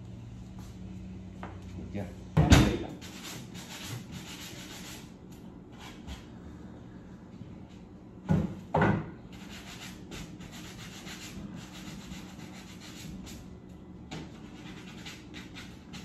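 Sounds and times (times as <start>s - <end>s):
sanding block rubbing on wood: 2.9s - 5.1s, 9.4s - 13.4s, 14.3s - 16.0s.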